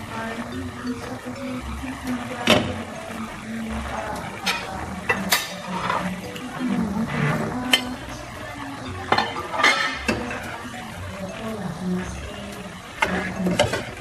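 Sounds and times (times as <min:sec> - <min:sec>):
metal spoon scraping a pan: 0:04.4 - 0:08.2, 0:09.1 - 0:10.7.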